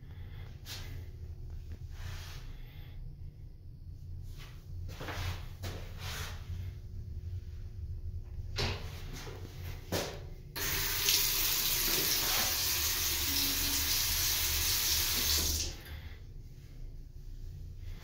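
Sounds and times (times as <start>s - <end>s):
water running from tap: 10.6s - 15.9s.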